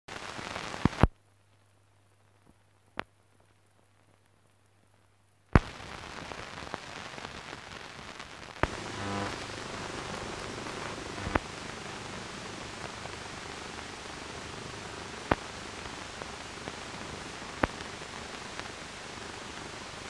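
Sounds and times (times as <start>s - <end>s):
steady crackling hiss: 0.1s - 20.0s
brief buzz: 8.6s - 11.4s
faint low hum: 8.6s - 20.0s.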